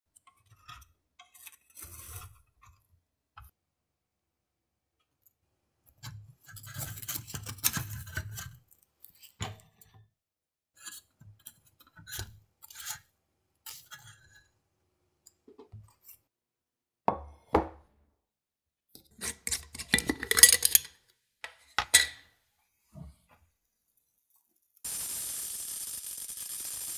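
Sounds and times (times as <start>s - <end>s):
tongs scraping and tapping metal: 5.9s - 10.0s, 10.8s - 14.5s, 19.0s - 20.9s
glass jar clinking and rattling: 19.5s - 20.9s.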